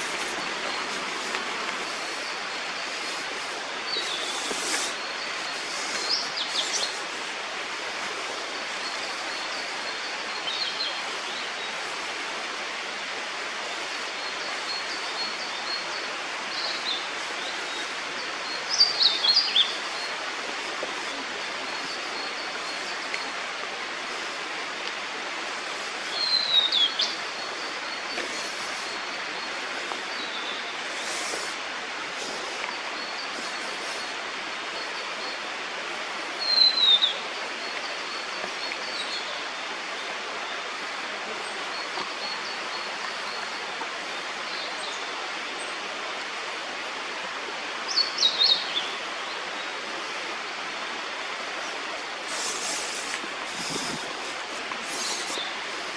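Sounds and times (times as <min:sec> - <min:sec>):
steady background hiss: 0:00.0 - 0:55.9
bird singing whistled song: 0:36.4 - 0:37.2.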